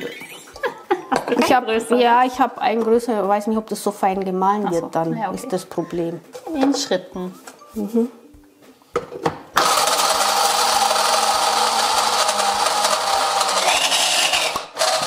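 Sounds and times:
hand blender grinding nuts: 9.6 - 15.0.

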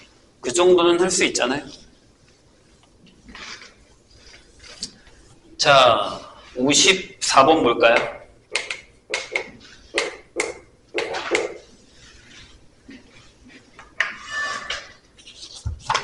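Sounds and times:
chalk tapping on blackboard: 7.9 - 11.7
faint shuffling: 11.6 - 13.8.

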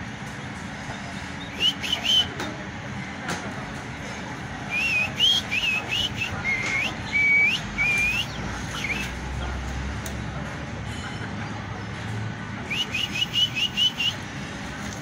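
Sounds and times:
bird whistled call notes: 1.4 - 2.4, 4.7 - 9.2, 12.6 - 14.2.

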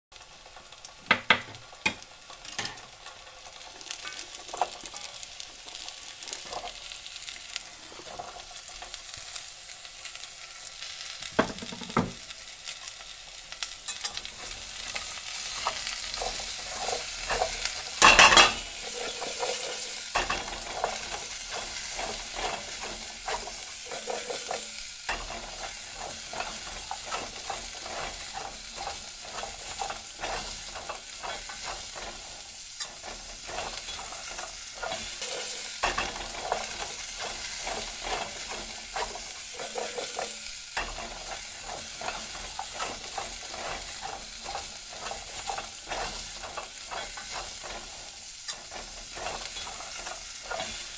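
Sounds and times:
vegetables sizzling in pan: 0.1 - 50.9
stirring clicks and scrapes: 13.9 - 50.9.

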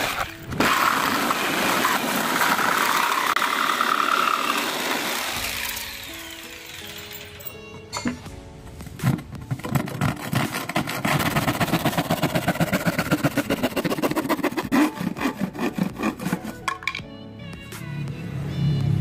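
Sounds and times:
handsaw cutting plywood: 0.0 - 7.0, 9.5 - 16.7.

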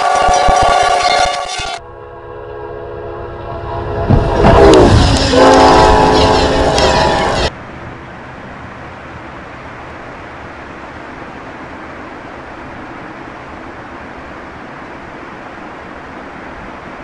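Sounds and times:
locomotive horn: 0.0 - 7.5
train rushing past: 0.0 - 11.2.

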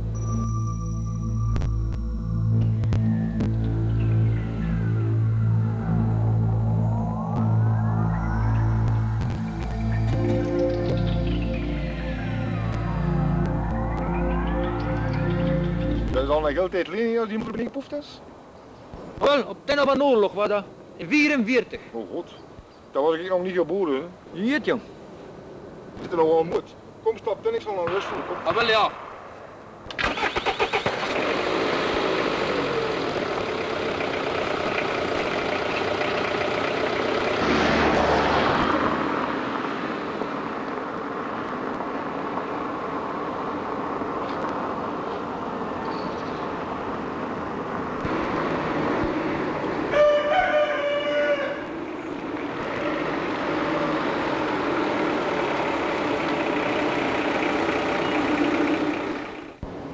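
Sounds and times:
engine starter cranking: 29.9 - 36.0
van engine running: 30.0 - 49.9, 51.5 - 59.9.

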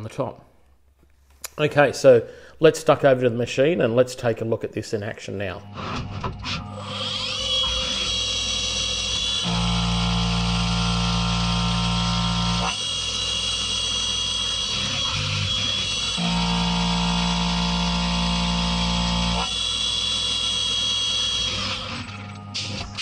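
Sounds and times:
spindle whine: 5.5 - 23.0
milling machine cutting metal: 6.6 - 23.0.

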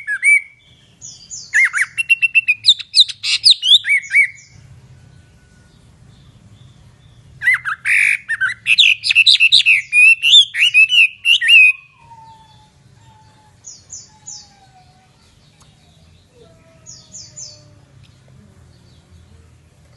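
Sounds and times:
bird singing whistled notes: 0.0 - 12.8.

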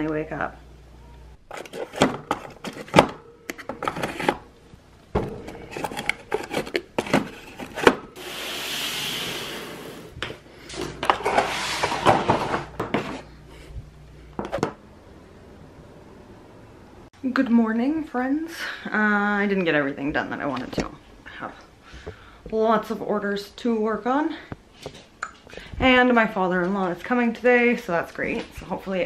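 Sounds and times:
smooth hiss: 8.2 - 10.2.

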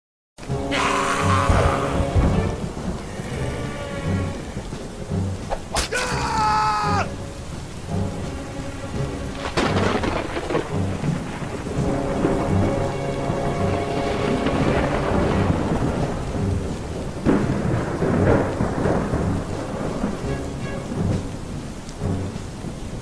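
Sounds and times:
dramatic music with drumbeat: 0.4 - 23.0
heavy rain: 0.4 - 23.0
thunder crash: 0.8 - 4.7, 9.3 - 22.2
sharp crack: 5.4 - 7.1.

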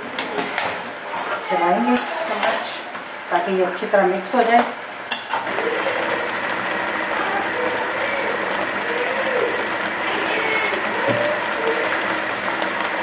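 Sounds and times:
meat sizzling in butter: 5.3 - 13.0.

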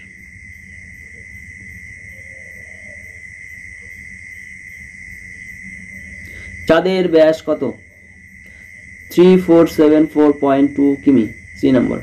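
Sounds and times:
high-pitched whine: 0.0 - 12.0
low hum: 0.0 - 12.0.

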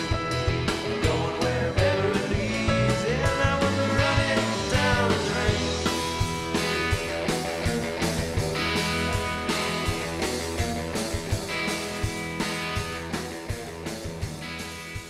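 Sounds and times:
live rock band playing: 0.0 - 15.0
person singing: 0.8 - 6.3.

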